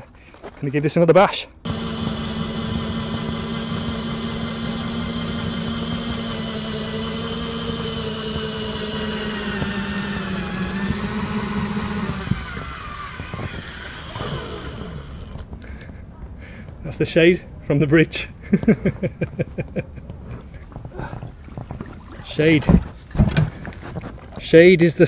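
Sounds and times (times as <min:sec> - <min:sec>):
drill motor whining: 0:01.7 - 0:15.5.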